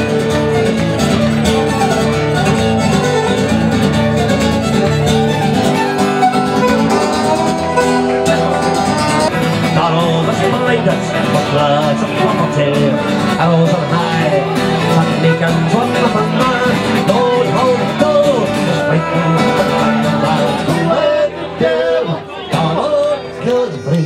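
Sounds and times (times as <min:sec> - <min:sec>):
fiddle melody: 0:00.0 - 0:23.2
strummed acoustic guitar: 0:00.0 - 0:24.0.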